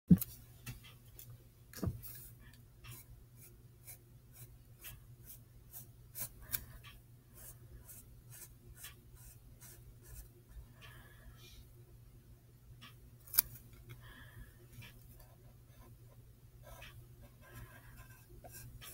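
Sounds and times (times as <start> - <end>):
faint steady hum: 0.1 - 18.9
pencil scratching on paper: 2.9 - 10.6, 16.6 - 18.9.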